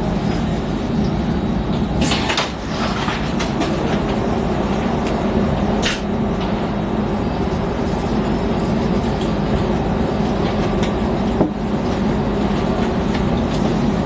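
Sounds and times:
train carriage rumble: 0:00.0 - 0:14.0.

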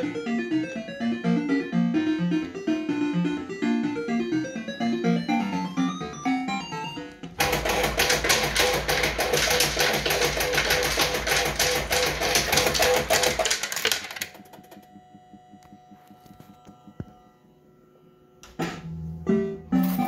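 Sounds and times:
electronic slot machine tune: 0:00.0 - 0:17.7, 0:19.3 - 0:20.0
coins clattering into tray: 0:07.4 - 0:14.4, 0:19.8 - 0:20.0.

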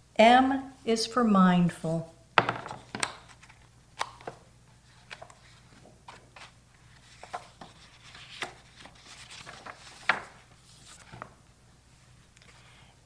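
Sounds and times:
paper pages rustling: 0:02.7 - 0:11.4.

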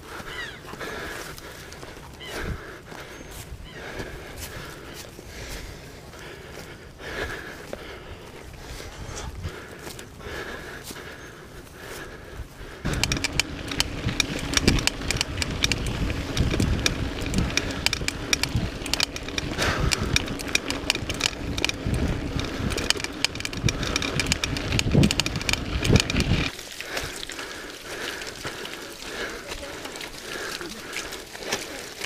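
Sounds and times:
bike rattling: 0:12.7 - 0:32.0
bike tyres rumbling over dirt: 0:12.8 - 0:32.0.

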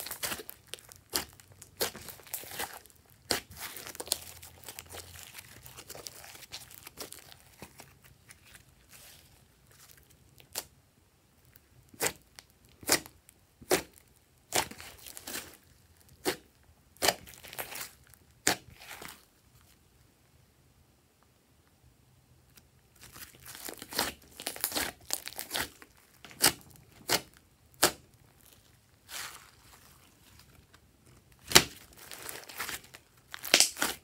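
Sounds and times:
slime crackling and squishing: 0:00.0 - 0:10.7, 0:11.4 - 0:19.8, 0:22.9 - 0:34.0
slime popping: 0:31.4 - 0:34.0.

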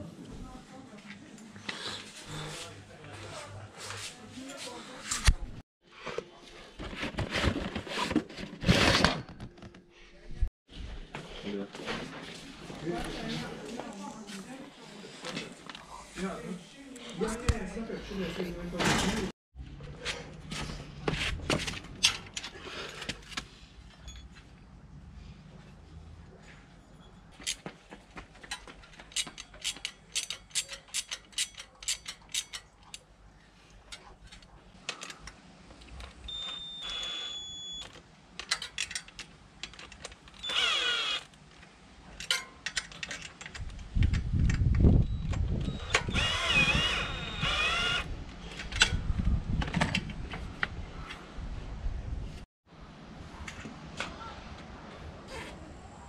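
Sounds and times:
cordless drill motor whine: 0:36.3 - 0:37.8, 0:40.4 - 0:41.3, 0:45.6 - 0:48.1.

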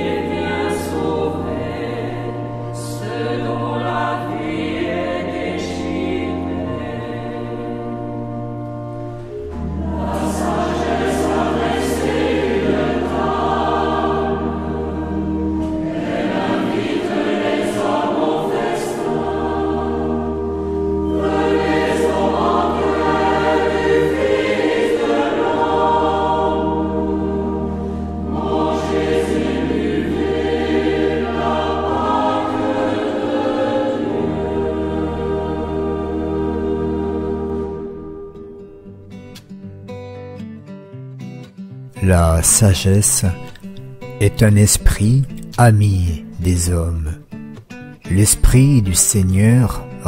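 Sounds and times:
choir singing a hymn: 0:00.0 - 0:38.6.

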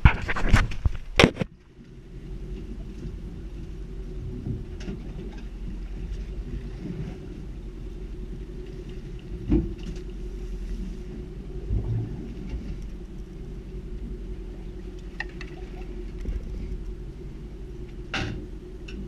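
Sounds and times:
small boat engine rumble: 0:00.0 - 0:19.0
boat thump: 0:09.4 - 0:10.1, 0:18.0 - 0:19.0.

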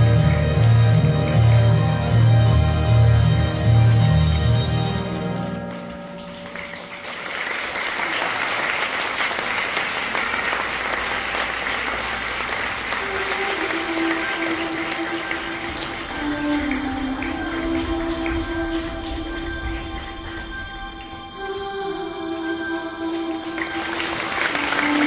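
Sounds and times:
soft music with sustained tones: 0:00.0 - 0:07.7, 0:12.4 - 0:25.0
audience applauding: 0:05.0 - 0:22.2, 0:23.0 - 0:25.0.

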